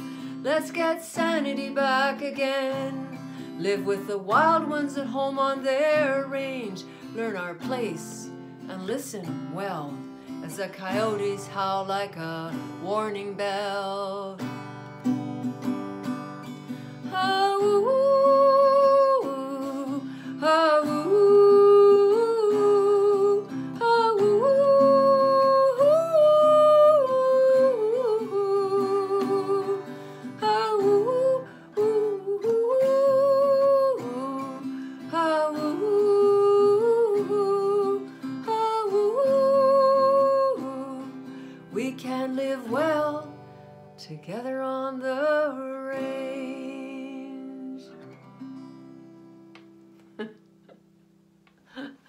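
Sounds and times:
woman singing wordless melody: 0:00.0 - 0:14.6, 0:17.0 - 0:48.1
strummed acoustic guitar: 0:00.0 - 0:51.0.

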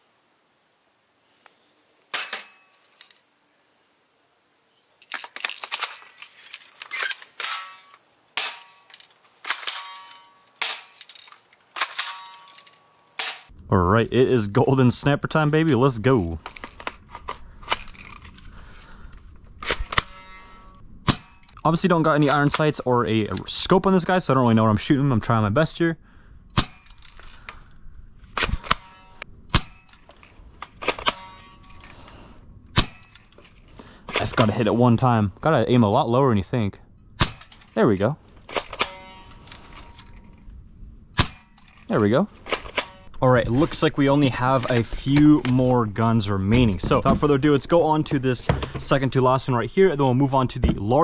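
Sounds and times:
plastic clicks and rattles: 0:05.0 - 0:07.7, 0:16.4 - 0:18.5
metallic spring ringing: 0:09.6 - 0:11.1, 0:11.9 - 0:13.5, 0:28.6 - 0:30.0, 0:38.8 - 0:40.3.

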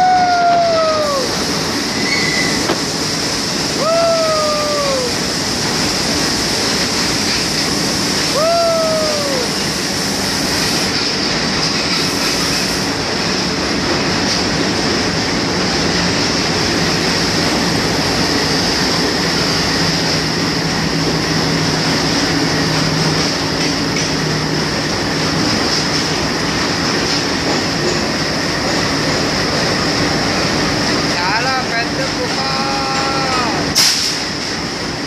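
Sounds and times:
high hiss: 0:00.0 - 0:11.2, 0:33.6 - 0:34.9
train wheels on rails: 0:00.0 - 0:35.0.

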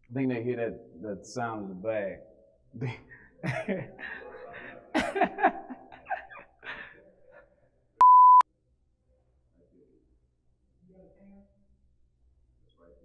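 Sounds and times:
test-tone beep: 0:08.0 - 0:08.4.

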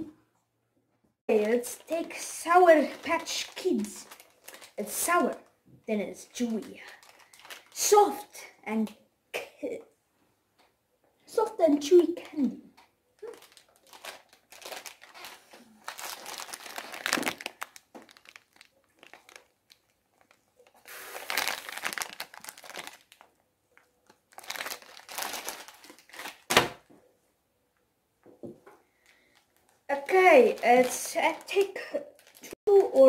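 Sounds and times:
plastic candy bag crinkling: 0:01.3 - 0:05.5, 0:06.1 - 0:08.4, 0:13.2 - 0:26.9, 0:28.9 - 0:33.0.

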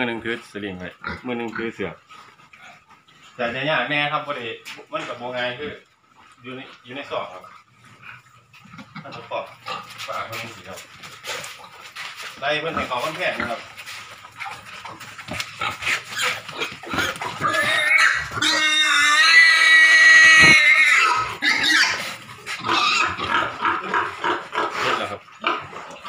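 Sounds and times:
pig squealing: 0:14.4 - 0:26.0
pig screaming high: 0:15.9 - 0:25.7.

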